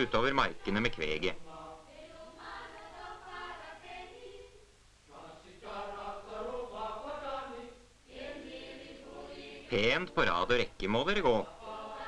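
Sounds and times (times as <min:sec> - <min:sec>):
choir singing slow song: 0:00.0 - 0:12.0.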